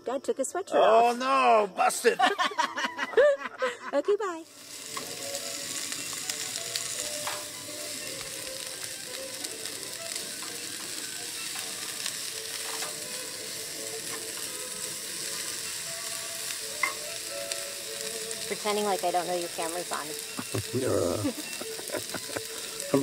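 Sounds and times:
vegetables sizzling in a frying pan: 0:04.0 - 0:23.0.

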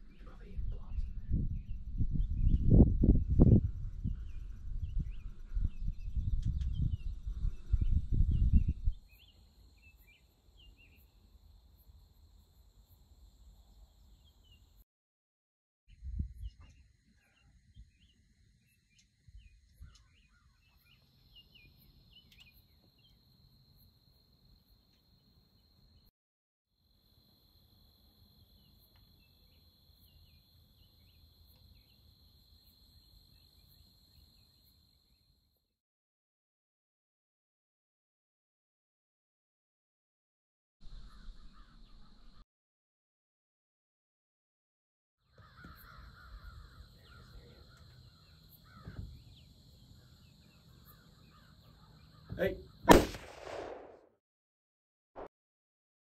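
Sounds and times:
low rumbling on microphone: 0:00.0 - 0:09.0
insect chirps: 0:05.8 - 0:14.8, 0:15.9 - 0:26.1, 0:26.8 - 0:35.7, 0:45.3 - 0:52.8
insects droning: 0:26.8 - 0:35.6, 0:45.3 - 0:53.2.

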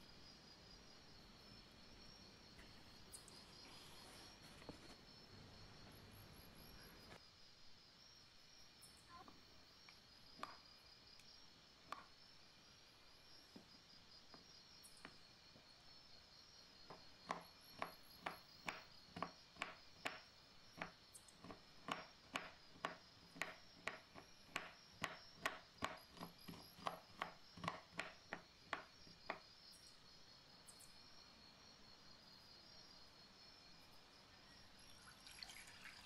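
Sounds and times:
knife chopping on wooden board: 0:16.9 - 0:29.4.

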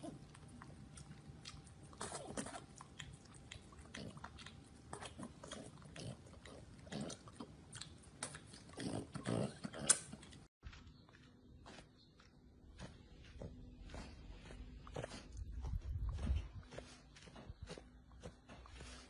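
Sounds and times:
dog licking and chewing: 0:00.0 - 0:10.5.

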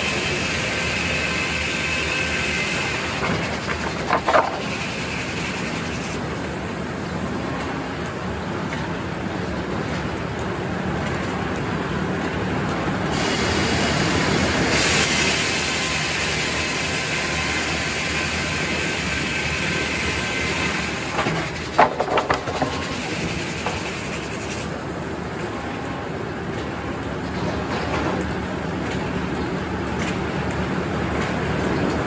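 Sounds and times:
saw cutting log: 0:00.0 - 0:06.2
sawmill running: 0:00.0 - 0:07.9, 0:13.1 - 0:27.0.

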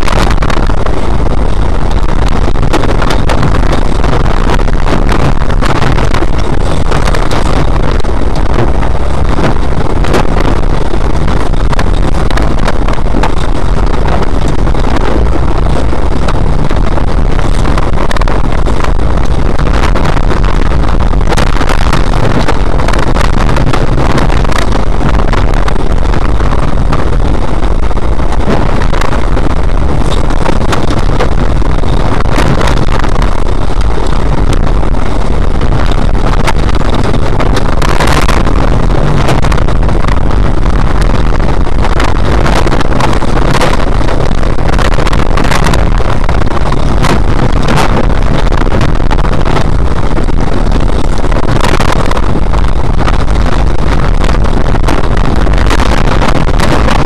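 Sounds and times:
car engine running hard: 0:00.0 - 0:57.0.

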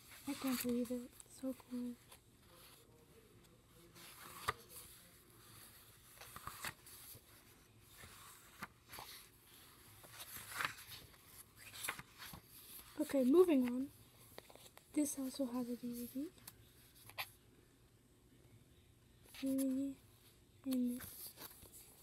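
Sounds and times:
paper pages turning: 0:00.0 - 0:02.9, 0:03.9 - 0:14.8, 0:20.7 - 0:22.0.

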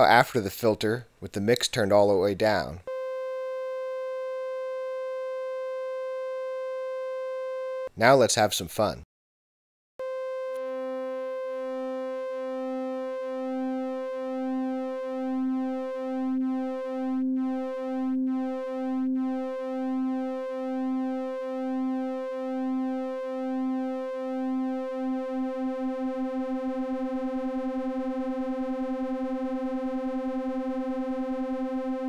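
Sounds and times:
buzzy synthesizer tone: 0:02.9 - 0:07.9, 0:10.0 - 0:32.0
low throbbing synth note: 0:10.0 - 0:32.0.

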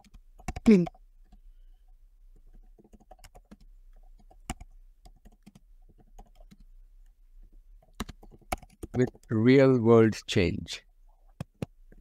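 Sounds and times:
faint keyboard typing: 0:00.0 - 0:01.5, 0:02.3 - 0:07.2, 0:07.8 - 0:09.4.

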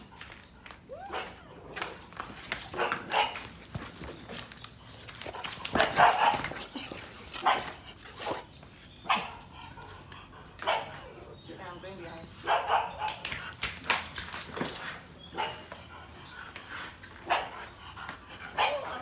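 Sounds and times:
dog barking: 0:12.4 - 0:13.2, 0:15.3 - 0:15.7, 0:18.6 - 0:19.0.

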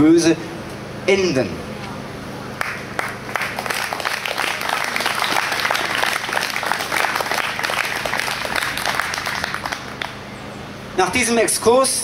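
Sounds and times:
crowd applauding: 0:02.6 - 0:10.2.

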